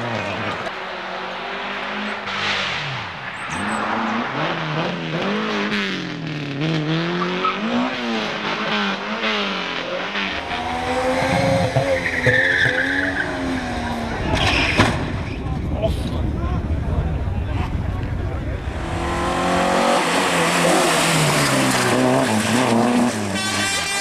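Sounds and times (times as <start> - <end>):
rally car engine revving: 0.0 - 24.0
tyres squealing: 10.9 - 13.7.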